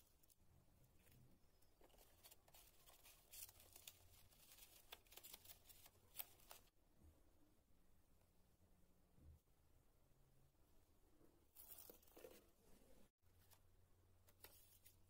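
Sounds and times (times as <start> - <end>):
paper rustling and clicking: 1.8 - 6.7.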